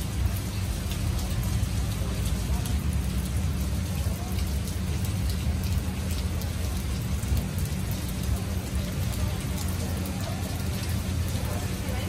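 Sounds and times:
rain hissing: 0:00.0 - 0:12.0
raindrops ticking on surfaces: 0:00.0 - 0:12.0.

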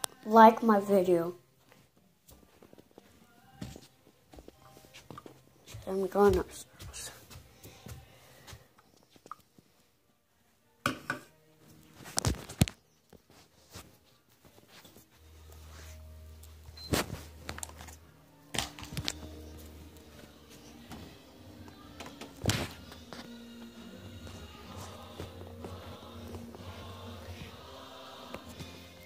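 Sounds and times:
faint music: 0:00.0 - 0:29.0
footsteps on stairs: 0:03.6 - 0:09.1.

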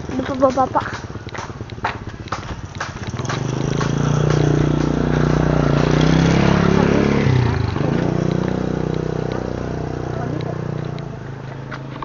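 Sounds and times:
motorcycle passing by: 0:00.0 - 0:12.0.

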